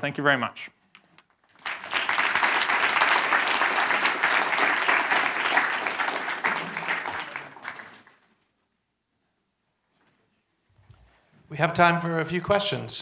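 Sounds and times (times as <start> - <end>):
audience applauding: 1.4 - 8.4.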